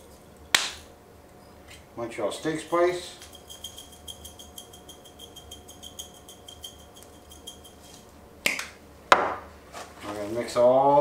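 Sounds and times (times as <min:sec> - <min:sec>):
spice shaker rattling: 0:02.4 - 0:08.1.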